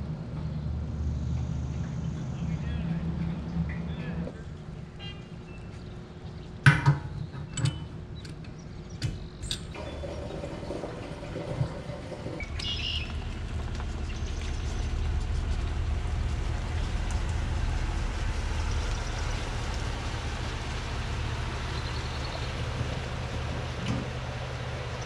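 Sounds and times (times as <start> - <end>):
truck engine low hum: 0.0 - 25.0
fuel nozzle filling a can: 9.7 - 14.8.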